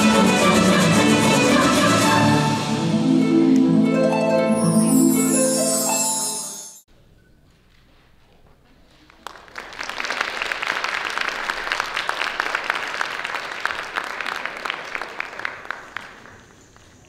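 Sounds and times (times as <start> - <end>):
audience applauding: 8.8 - 17.0.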